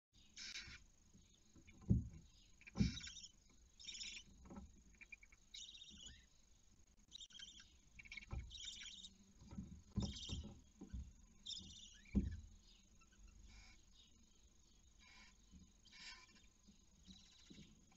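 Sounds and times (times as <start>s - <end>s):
owl chicks rasping hisses: 15.0s - 16.5s.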